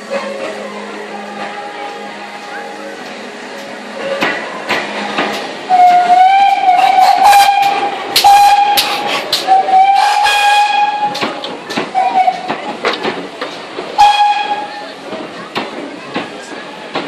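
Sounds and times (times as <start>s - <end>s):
steam locomotive whistle blasts: 5.7s - 11.2s, 14.0s - 14.7s.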